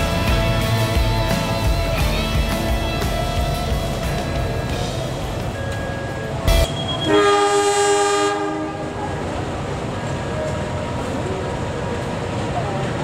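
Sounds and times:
low locomotive rumble: 0.0 - 13.0
locomotive air horn: 6.6 - 9.0.

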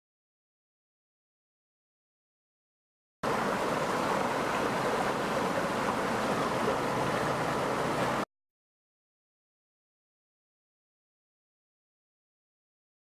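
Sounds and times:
stream rushing over rocks: 3.2 - 8.2.

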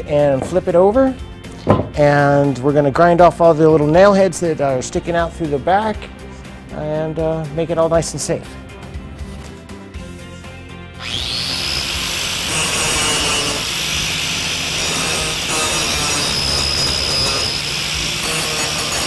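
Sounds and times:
angle grinder grinding: 11.0 - 19.0.

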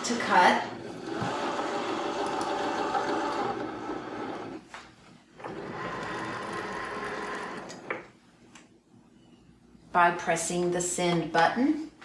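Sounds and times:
cutting machine motors whirring: 0.8 - 4.6, 5.4 - 7.9.

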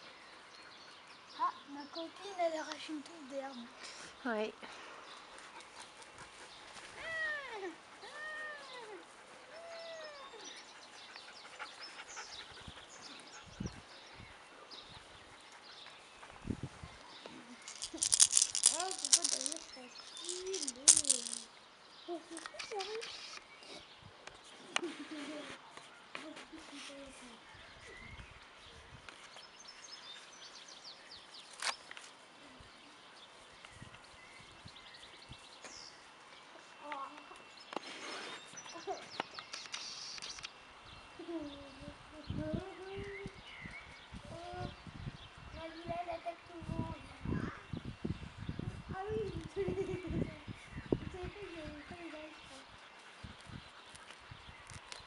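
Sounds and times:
faint rustles and ticks: 2.1 - 7.0, 10.6 - 27.4, 49.0 - 55.0
small bird chirping trills: 9.6 - 24.6, 27.2 - 55.0.

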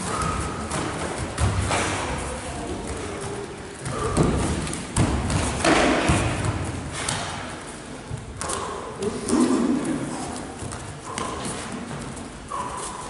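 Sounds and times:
thuds and scuffs on foam mats: 3.8 - 7.5.

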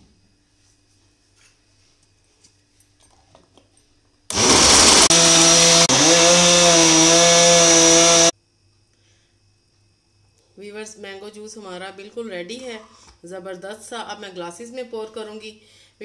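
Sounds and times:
blender motor running: 4.3 - 8.3.

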